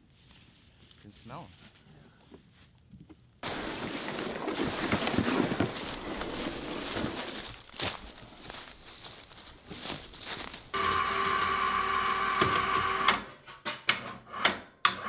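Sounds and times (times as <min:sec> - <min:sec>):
footsteps crunching through leaves: 0:03.4 - 0:10.8
sled dragged over dry leaves: 0:03.4 - 0:11.0.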